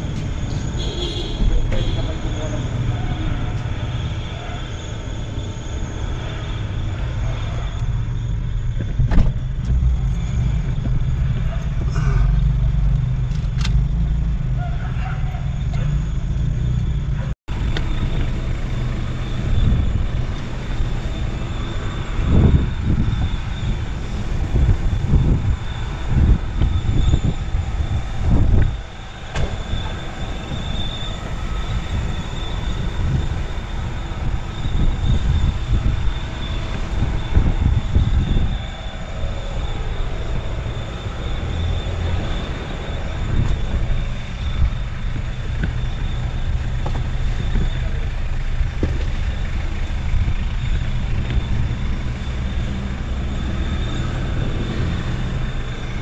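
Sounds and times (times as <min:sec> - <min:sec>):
van engine and road rumble: 0:00.0 - 0:56.0
faint high whine: 0:15.6 - 0:56.0.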